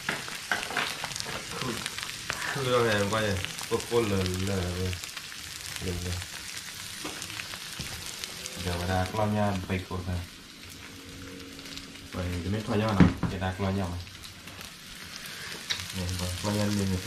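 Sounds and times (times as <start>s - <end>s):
beef sizzling on a griddle: 0.0s - 17.0s
person talking: 12.1s - 14.0s.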